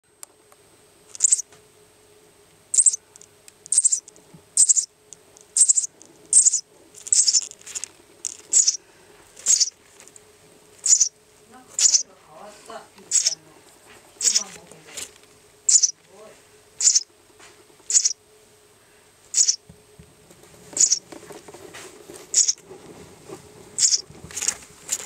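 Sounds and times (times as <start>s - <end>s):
faint steady hum: 0.0s - 25.0s
nestling bird cheeping: 1.2s - 1.4s, 2.7s - 3.0s, 3.7s - 4.0s, 4.6s - 4.9s, 5.6s - 7.5s, 8.5s - 8.8s, 9.4s - 9.7s, 10.8s - 11.1s, 11.8s - 12.1s, 13.1s - 13.4s, 14.2s - 14.5s, 15.7s - 16.0s, 16.8s - 17.1s, 17.9s - 18.2s, 19.3s - 19.6s, 20.8s - 21.0s, 22.3s - 22.6s, 23.8s - 24.0s.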